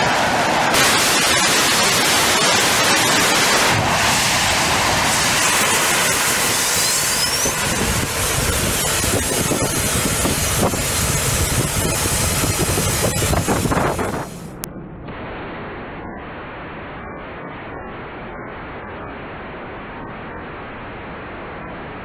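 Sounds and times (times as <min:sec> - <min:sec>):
rocket engine roaring: 0:00.0 - 0:18.2
sharp cracks: 0:00.7 - 0:05.9.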